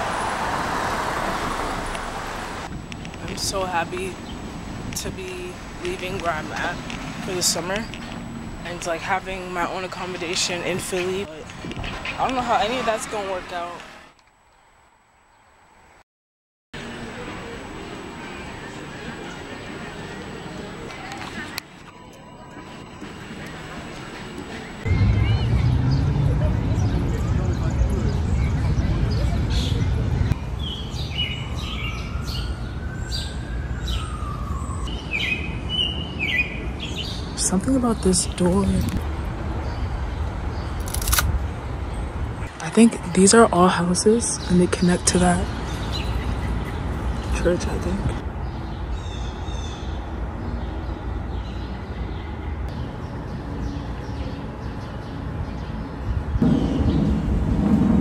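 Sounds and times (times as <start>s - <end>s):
distant traffic rumble: 0.0s - 15.9s, 16.8s - 58.0s
low city hum: 0.0s - 16.0s, 16.8s - 58.0s
music: 16.8s - 24.8s.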